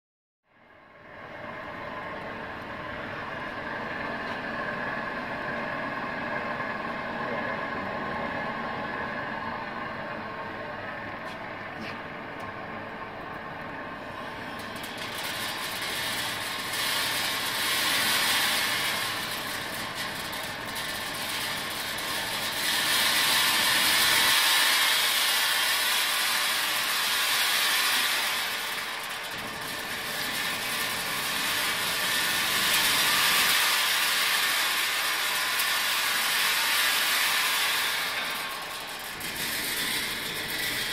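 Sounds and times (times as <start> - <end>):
seeds rattling on vibrating sieve: 14.1 - 40.9.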